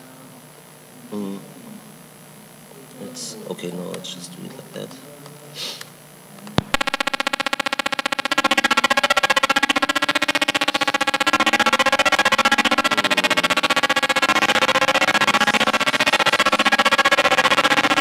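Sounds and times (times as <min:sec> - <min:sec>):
pulsing buzzy synth chord: 0:06.1 - 0:18.0.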